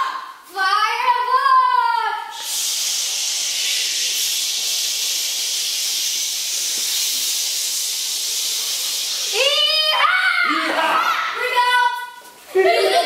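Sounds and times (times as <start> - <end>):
children hissing together: 2.3 - 11.6.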